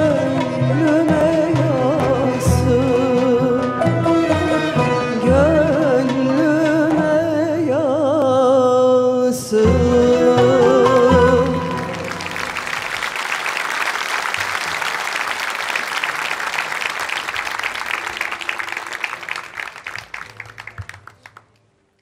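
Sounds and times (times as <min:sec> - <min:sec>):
audience applauding: 0:10.9 - 0:22.0.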